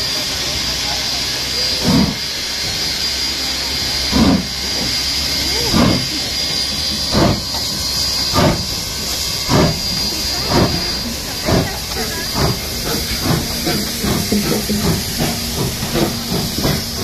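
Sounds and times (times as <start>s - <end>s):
steam hissing: 0.0s - 17.0s
steam locomotive exhaust beats: 0.0s - 17.0s.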